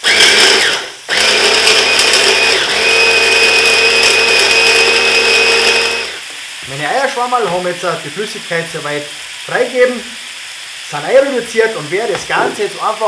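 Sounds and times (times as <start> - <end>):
hand blender motor running: 0.0 - 6.3.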